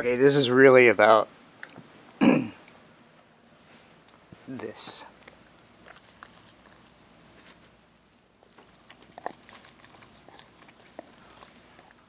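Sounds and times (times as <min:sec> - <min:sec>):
dog teeth scraping on bone: 0:05.3 - 0:07.2, 0:08.4 - 0:12.0.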